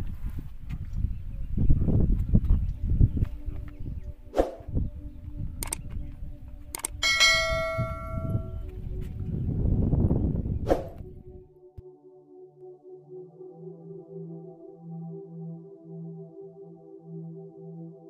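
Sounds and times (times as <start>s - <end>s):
wind rumble on microphone: 0.0s - 11.5s
soft ambient music: 0.0s - 18.0s
sharp clicks: 5.6s - 6.0s, 6.7s - 7.0s
bell-like chime: 7.0s - 8.6s.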